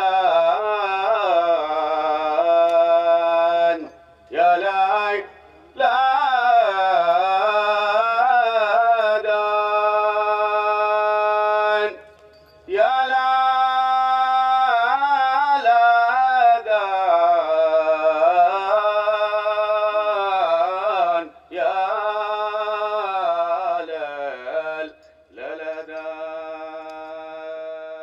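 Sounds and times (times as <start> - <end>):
man singing long held notes: 0.0 - 12.0, 12.7 - 28.0.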